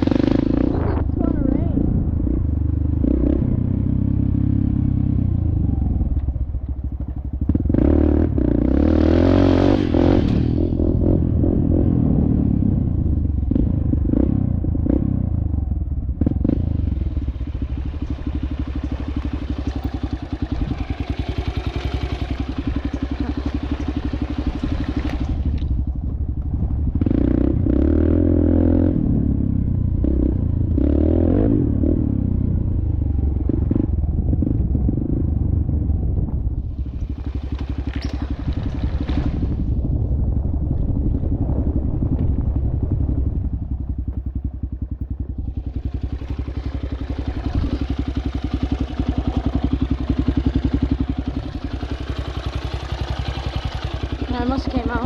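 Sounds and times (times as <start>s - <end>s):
dirt bike engine revving: 0.0s - 5.8s, 7.4s - 12.8s, 16.2s - 25.8s, 26.6s - 35.2s, 45.4s - 55.0s.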